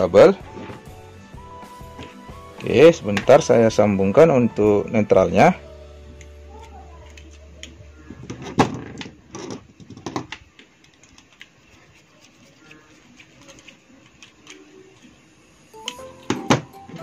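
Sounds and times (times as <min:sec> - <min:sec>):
plastic and metal parts clicking: 0:07.0 - 0:11.6, 0:13.4 - 0:15.1.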